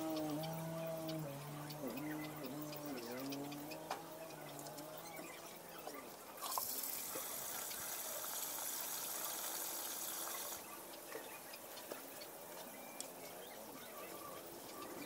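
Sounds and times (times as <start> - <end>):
water running: 6.4 - 10.6.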